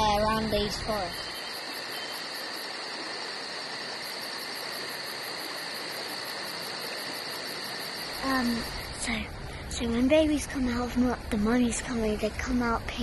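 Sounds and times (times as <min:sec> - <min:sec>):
person speaking: 0:00.0 - 0:01.2
steady hiss: 0:00.0 - 0:13.0.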